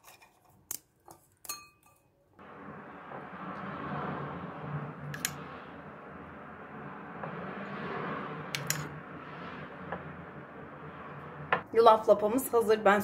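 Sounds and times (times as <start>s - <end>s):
spoon clinking against glass: 1.4s - 2.0s.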